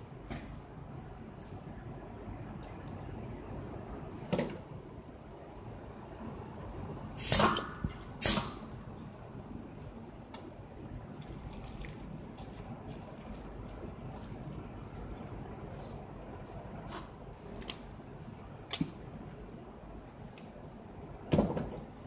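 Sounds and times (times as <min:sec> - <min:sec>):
steady background hum: 0:00.0 - 0:22.0.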